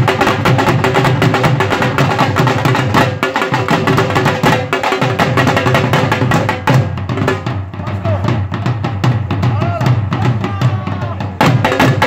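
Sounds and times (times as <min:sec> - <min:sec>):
dhol drum beaten fast: 0:00.0 - 0:12.0.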